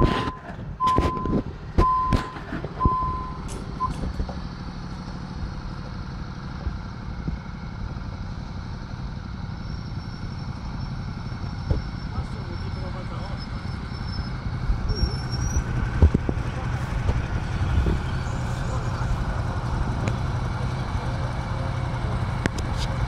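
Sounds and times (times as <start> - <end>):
level crossing beeping: 0.0 - 4.0
engine idling: 0.0 - 23.0.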